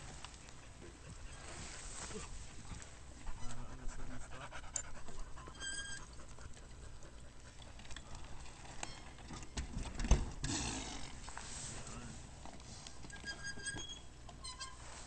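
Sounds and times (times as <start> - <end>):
heavy panting breaths: 0.3 - 8.4
bike tyres rustling on dirt: 1.3 - 3.3, 10.3 - 13.0
short squeak: 5.5 - 6.1, 13.1 - 15.0
bike thumping on wooden plank: 9.3 - 11.1.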